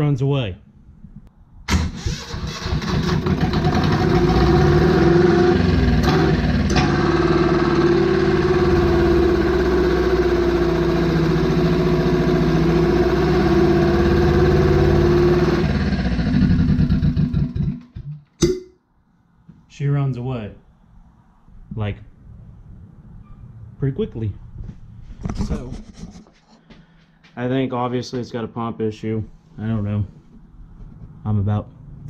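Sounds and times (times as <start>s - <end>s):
diesel engine racing: 2.2s - 17.9s.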